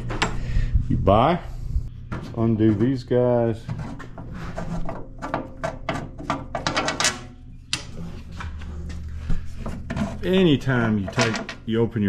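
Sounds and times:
metal clicks and rattles: 0:04.9 - 0:08.0, 0:11.1 - 0:11.7.

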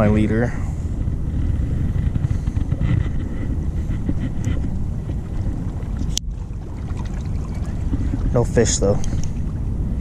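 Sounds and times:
wind buffeting microphone: 0:00.0 - 0:10.0
faint rustles and ticks: 0:01.0 - 0:06.4, 0:07.6 - 0:09.5.

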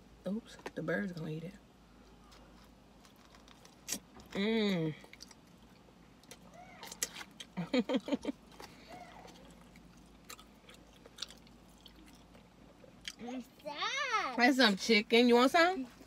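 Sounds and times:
person chewing with lip smacks: 0:02.2 - 0:04.4, 0:05.0 - 0:13.2.

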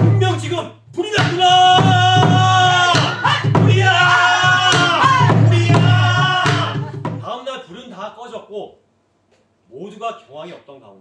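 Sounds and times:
barrel drum strikes: 0:00.0 - 0:07.3.

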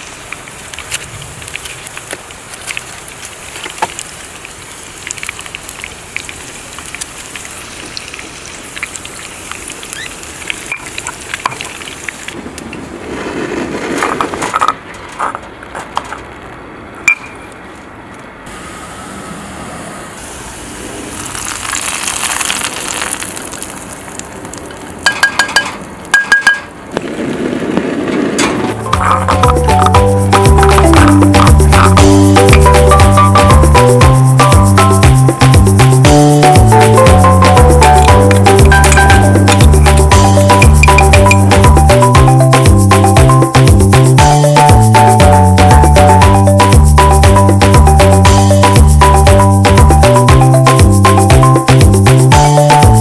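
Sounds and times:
onion sizzling in oil: 0:00.0 - 0:12.4, 0:20.2 - 0:24.4
pestle grinding in stone mortar: 0:28.8 - 0:44.1.

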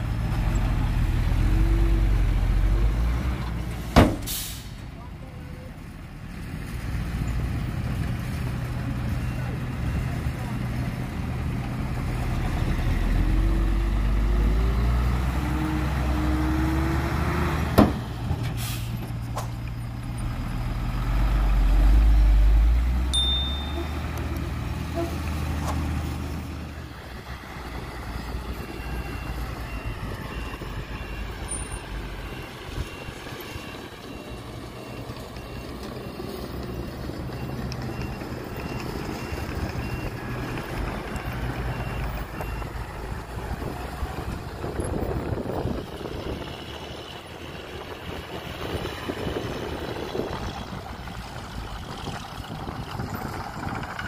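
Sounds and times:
heavy diesel engine running: 0:21.1 - 0:54.0
reversing beeper: 0:23.2 - 0:24.2, 0:28.0 - 0:42.9.

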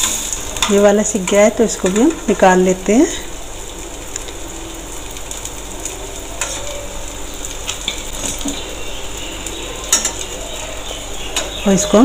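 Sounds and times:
fritter sizzling in hot oil: 0:00.0 - 0:12.0
metal spoon clicking on pan: 0:09.9 - 0:10.4.

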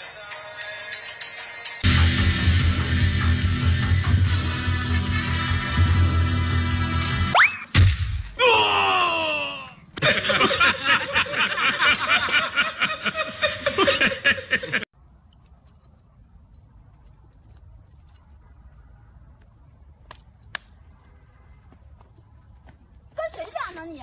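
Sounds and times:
loud laughter: 0:10.0 - 0:14.9.

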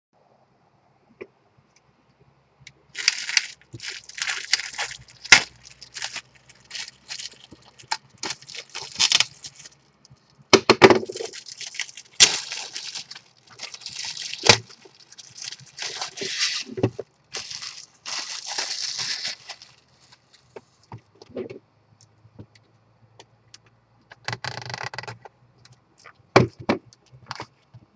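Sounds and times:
plastic shrink wrap crinkling: 0:03.0 - 0:20.9.

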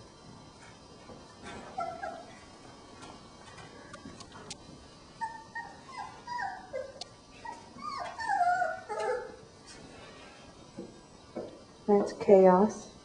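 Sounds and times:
puppies whining: 0:01.4 - 0:02.7, 0:05.1 - 0:09.5.

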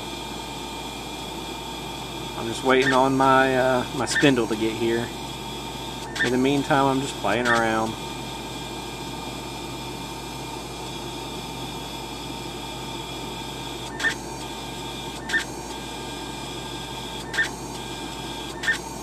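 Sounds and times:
stepper motor whine and hum: 0:00.0 - 0:19.0
short motor buzz: 0:12.5 - 0:19.0.

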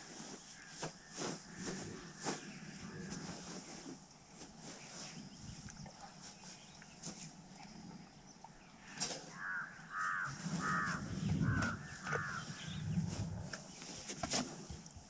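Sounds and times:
crow cawing: 0:09.3 - 0:12.7
low rumbling thumps: 0:10.6 - 0:13.6.

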